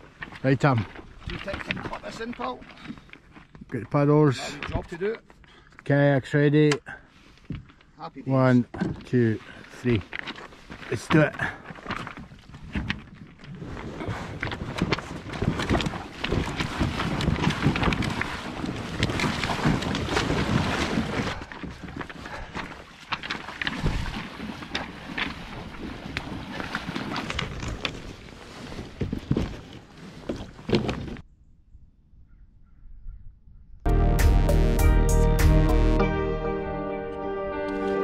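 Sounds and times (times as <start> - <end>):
footsteps crunching on pebbles: 0.0 - 5.3
kayak hulls scraping on pebbles: 0.0 - 6.0, 7.1 - 31.2
water splashing: 13.5 - 30.9.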